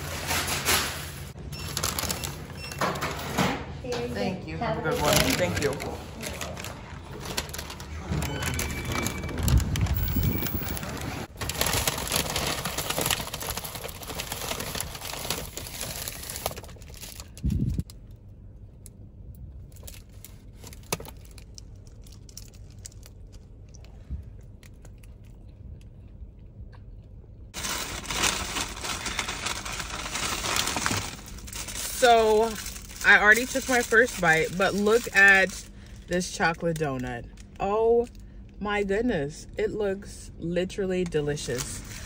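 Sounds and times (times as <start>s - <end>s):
paper bag crinkling and rustling: 0.0s - 3.3s, 4.8s - 17.9s, 27.6s - 35.6s.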